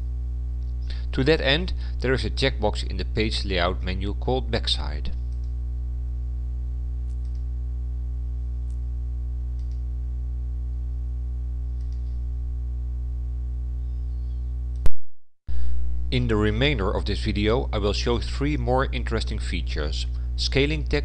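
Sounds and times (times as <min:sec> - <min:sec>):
steady low hum: 0:00.0 - 0:21.0
computer mouse clicks: 0:07.1 - 0:07.4, 0:09.6 - 0:09.8, 0:11.8 - 0:12.2.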